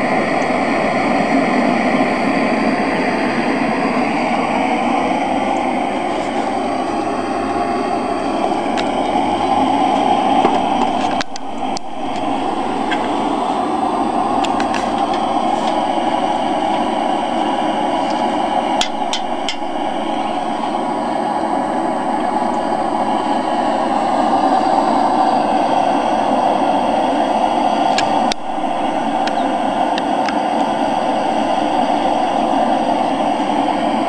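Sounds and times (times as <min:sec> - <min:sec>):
gas torch rushing: 0:00.0 - 0:34.0
sharp metallic taps: 0:18.8 - 0:19.7.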